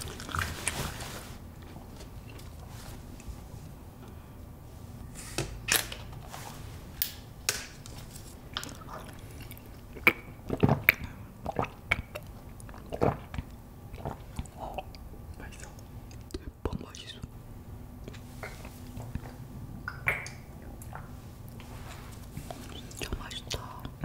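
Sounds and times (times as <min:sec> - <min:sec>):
person gulping: 0:08.6 - 0:15.4.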